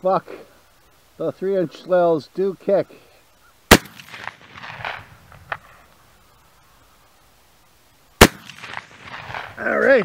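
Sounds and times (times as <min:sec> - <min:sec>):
shotgun shot: 0:03.7 - 0:05.7, 0:08.2 - 0:09.6.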